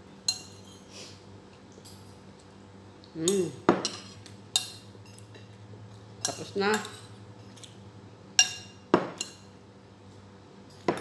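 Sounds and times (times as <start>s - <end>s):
spoon clinking against bowl: 0.3s - 0.8s.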